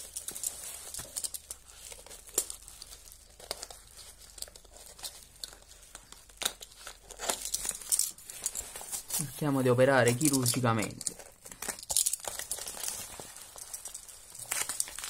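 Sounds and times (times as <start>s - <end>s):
plastic wrap crinkling: 0.0s - 15.0s
cardboard box rustling: 0.3s - 10.6s.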